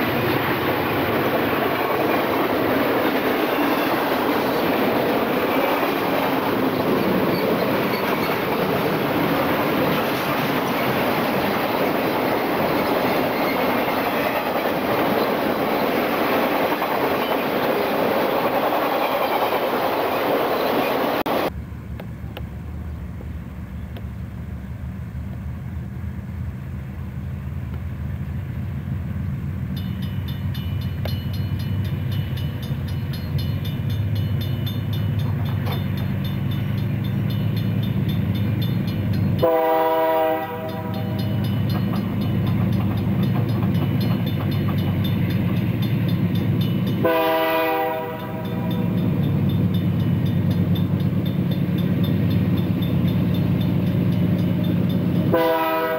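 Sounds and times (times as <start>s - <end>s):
diesel locomotive engines rumbling: 0.0s - 55.9s
locomotive horn blasts: 39.4s - 41.4s, 47.0s - 49.0s, 55.3s - 55.9s.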